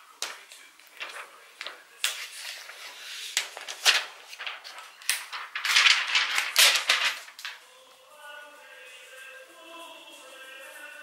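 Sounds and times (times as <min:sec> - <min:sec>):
plastic film crackling: 0:00.2 - 0:07.8.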